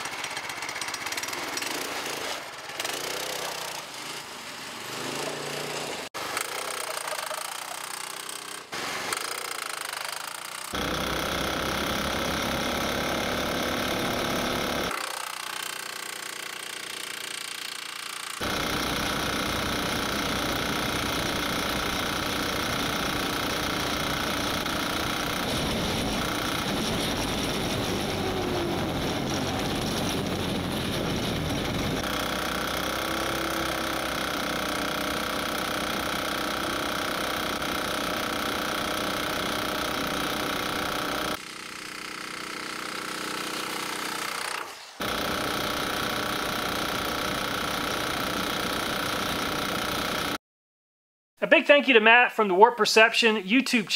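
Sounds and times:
engine running: 0:10.7 - 0:15.2, 0:18.4 - 0:43.0.

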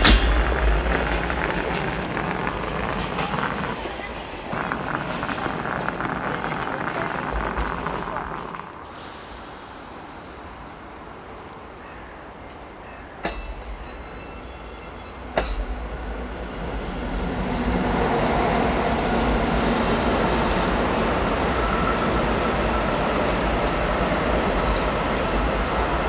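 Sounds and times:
sharp metallic clanks: 0:00.0 - 0:01.4
train wheels rumbling on rail: 0:00.0 - 0:26.0.

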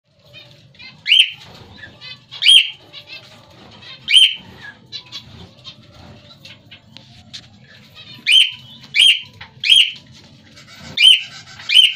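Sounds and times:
soft high bird chirping: 0:00.2 - 0:11.9
loud sharp bird calls: 0:00.8 - 0:03.3, 0:03.9 - 0:06.1, 0:07.9 - 0:11.9.

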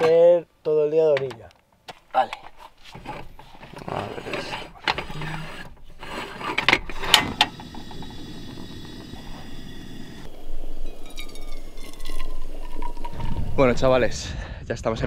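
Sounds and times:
gas burner hissing: 0:06.6 - 0:14.2
coffee pouring into a cup: 0:10.8 - 0:13.6.

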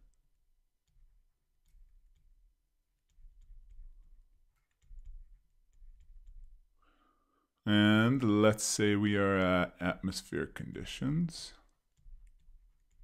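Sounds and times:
stylus tapping on drawing tablet: 0:00.8 - 0:06.7.

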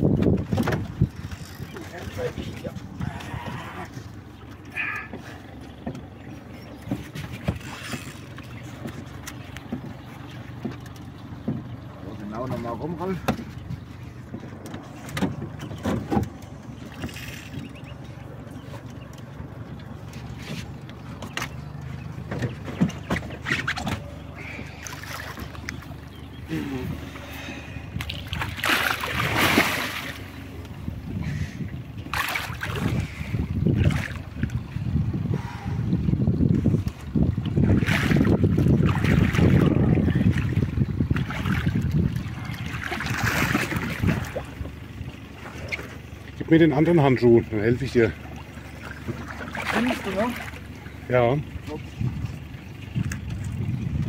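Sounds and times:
wind rumble on microphone: 0:00.0 - 0:04.0, 0:25.4 - 0:45.8, 0:51.0 - 0:54.0
low steady hum: 0:00.0 - 0:54.0
water lapping against hull: 0:00.0 - 0:54.0
fish splashing at water surface: 0:27.2 - 0:30.5, 0:32.0 - 0:34.3, 0:37.6 - 0:44.6.

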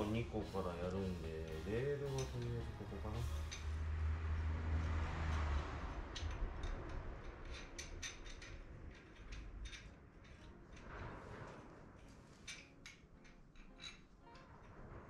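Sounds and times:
light metallic clicks and taps: 0:00.9 - 0:03.7.

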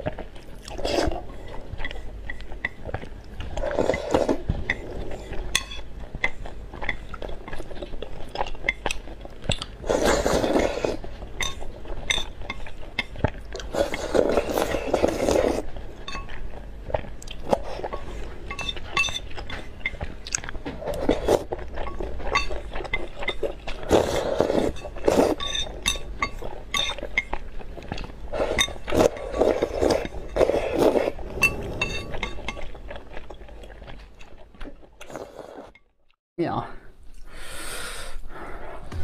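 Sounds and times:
person slurping noodles: 0:09.8 - 0:11.0, 0:13.7 - 0:15.6, 0:23.8 - 0:25.4, 0:28.3 - 0:32.3, 0:35.0 - 0:35.7.

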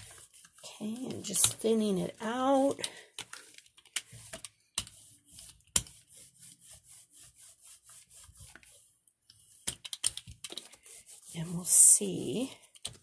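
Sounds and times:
brayer rubbing over printing plate: 0:00.0 - 0:01.6, 0:04.1 - 0:09.7, 0:10.8 - 0:12.3.

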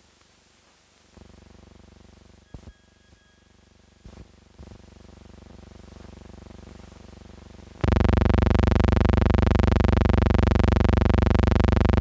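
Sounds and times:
faint hiss: 0:00.0 - 0:07.8
loud steady buzz: 0:01.1 - 0:12.0.

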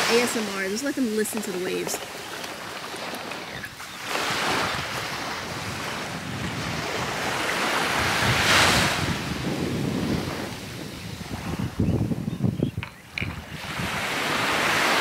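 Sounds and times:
small waves washing on beach: 0:00.0 - 0:11.8, 0:13.2 - 0:15.0.

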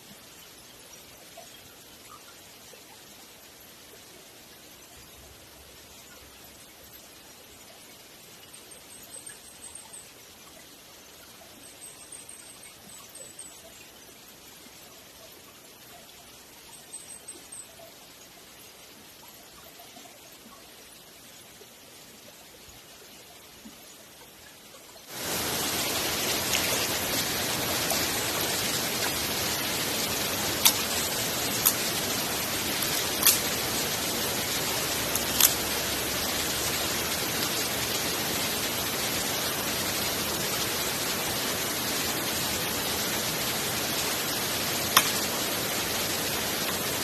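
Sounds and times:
waterfall and stream rushing: 0:24.2 - 0:47.0.

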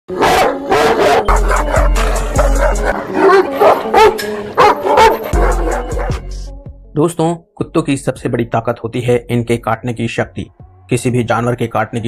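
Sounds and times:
large dog barking loudly: 0:00.1 - 0:06.2
music with deep bass: 0:01.3 - 0:03.0, 0:05.2 - 0:07.0.

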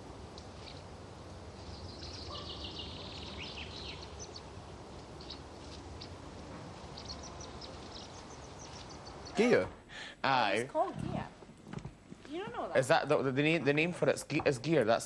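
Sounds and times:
steady low background hum: 0:00.0 - 0:15.0
faint high bird chirps: 0:01.6 - 0:04.5, 0:06.8 - 0:09.4.

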